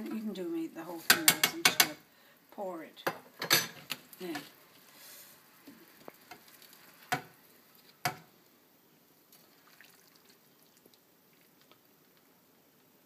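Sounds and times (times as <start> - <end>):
sauce pouring: 4.0 - 13.0.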